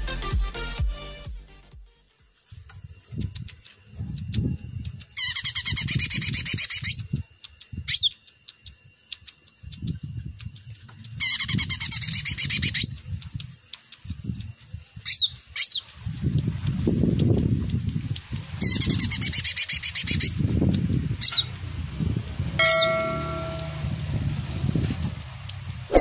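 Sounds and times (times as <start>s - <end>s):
sweeping whistled bird calls: 5.2s - 7.2s, 7.8s - 8.8s, 11.2s - 13.0s, 15.1s - 15.9s, 18.6s - 20.4s, 21.2s - 21.6s, 22.6s - 24.1s
bird song rapid notes: 22.6s - 24.5s.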